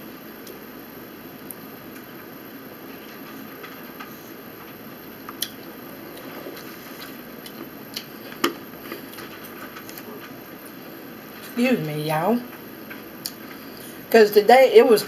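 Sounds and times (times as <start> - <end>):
people chewing: 2.9 - 10.8.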